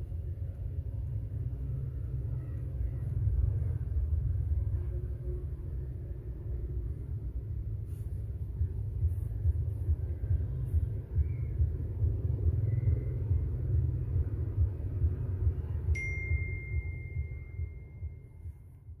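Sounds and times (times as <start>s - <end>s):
low steady rumble: 0.0s - 19.0s
smartphone notification chime: 16.0s - 18.1s.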